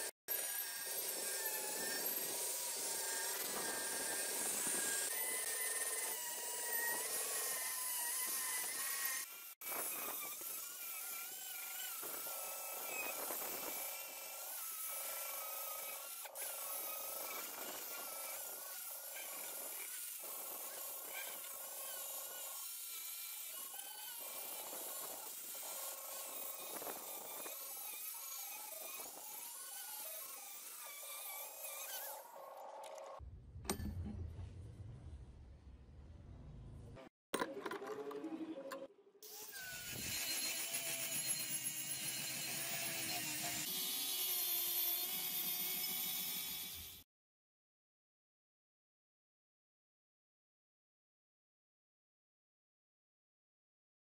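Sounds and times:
angle grinder on metal: 0.0s - 33.1s, 39.2s - 47.0s.

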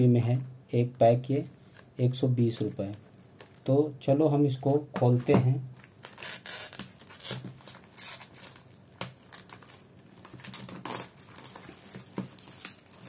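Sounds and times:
plastic wrap crinkling and tearing: 5.8s - 13.0s.

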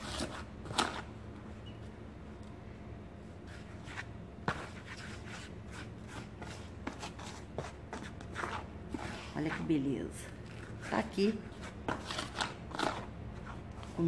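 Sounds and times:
low steady hum: 0.0s - 14.0s
fingers scraping powdered soap: 4.8s - 9.8s.

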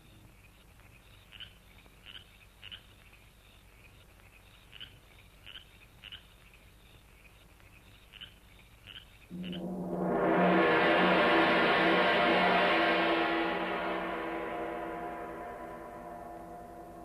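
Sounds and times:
frogs chirping: 0.0s - 9.6s
steady low hum: 9.3s - 17.0s.

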